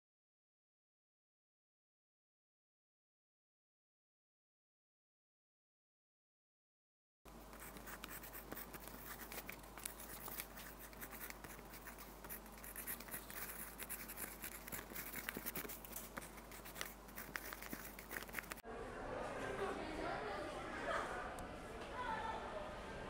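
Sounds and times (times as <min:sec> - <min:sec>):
steady low hum: 0:07.3 - 0:19.0
pen scratching on paper: 0:07.4 - 0:18.6.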